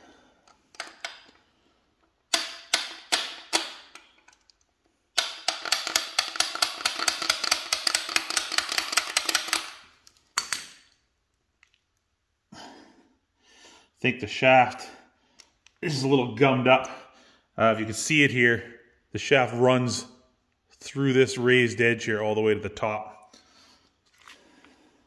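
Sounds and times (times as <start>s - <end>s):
rapid ratchet clicks: 5.2s - 9.8s.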